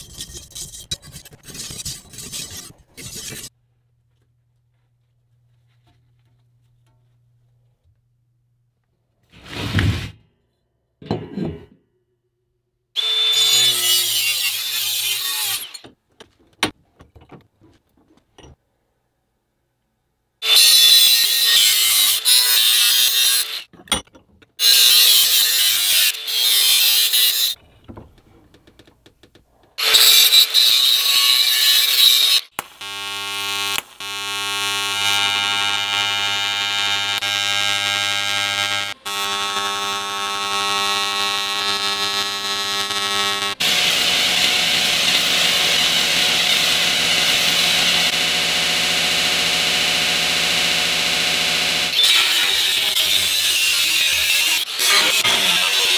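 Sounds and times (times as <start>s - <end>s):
engraving tool rasping on metal: 0.0s - 3.5s
welding arc buzzing: 29.8s - 55.9s.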